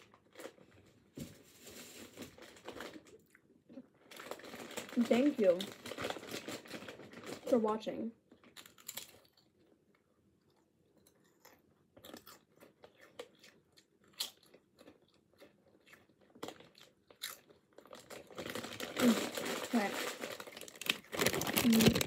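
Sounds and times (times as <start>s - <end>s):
plastic chip bag crinkling: 0.0s - 9.8s, 14.3s - 22.0s
potato chips crunching: 8.3s - 22.0s.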